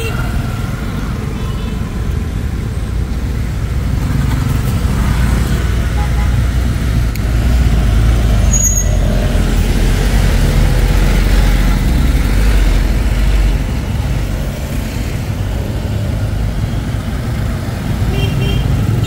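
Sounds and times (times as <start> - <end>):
low traffic rumble: 0.0 - 19.0.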